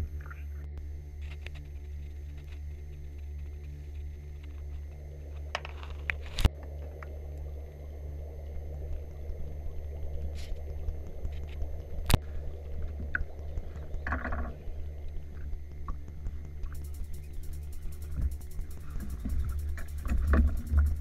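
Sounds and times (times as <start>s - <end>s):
steady low hum: 0.0s - 21.0s
water splashing against boat: 17.8s - 21.0s.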